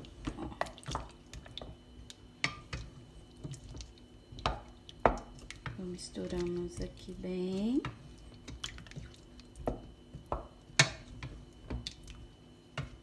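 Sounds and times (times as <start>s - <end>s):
wooden spoon knocking on pot: 9.6s - 11.0s.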